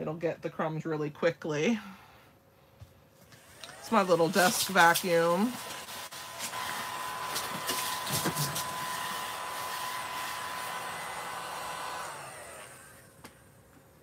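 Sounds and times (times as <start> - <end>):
vacuum motor whine: 3.3 - 13.4
motor winding down: 3.4 - 13.3.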